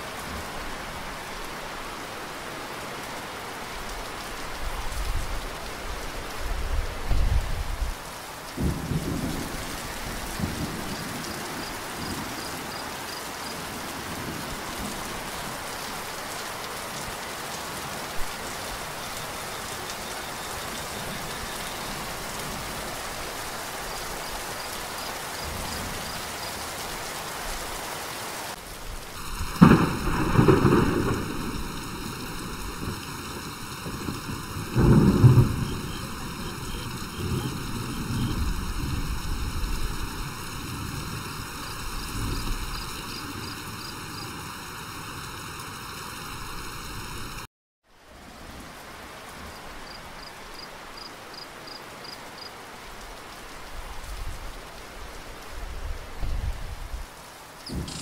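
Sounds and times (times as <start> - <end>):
heavy rain: 0.0 - 58.0
thunder rumbling: 8.6 - 12.8, 29.2 - 47.5.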